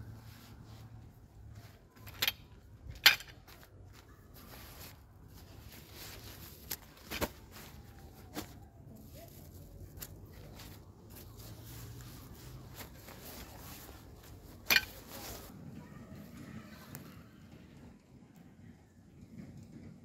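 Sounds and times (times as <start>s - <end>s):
fabric rustling: 0.0s - 15.5s.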